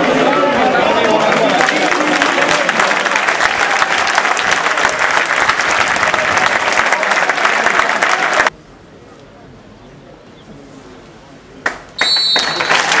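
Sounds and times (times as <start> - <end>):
crowd applauding: 0.0 - 8.5, 12.0 - 13.0.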